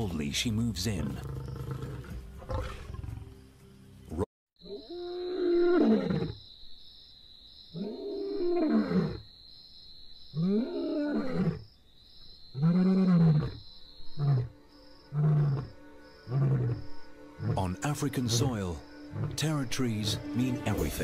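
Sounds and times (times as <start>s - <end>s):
lion roaring: 1.0s - 3.3s, 4.9s - 6.4s, 15.1s - 17.7s, 19.1s - 19.4s
lion grunts: 1.1s - 3.2s.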